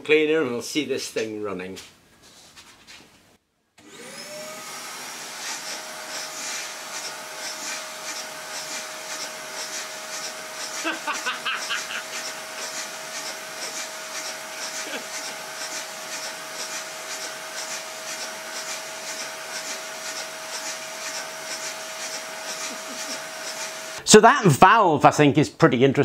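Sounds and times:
vacuum cleaner running: 3.8 - 24.0.

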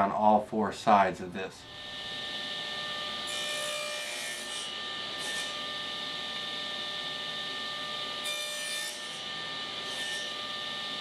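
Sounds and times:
table saw whine: 1.6 - 11.0
saw blade cutting plywood: 1.7 - 6.5, 8.0 - 11.0.

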